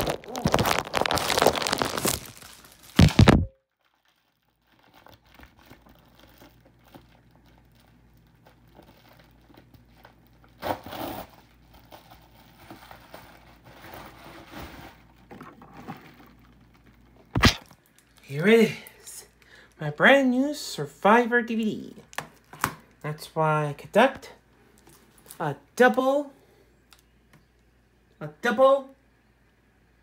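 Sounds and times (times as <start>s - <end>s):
plastic mailer crinkling: 0.0s - 18.3s.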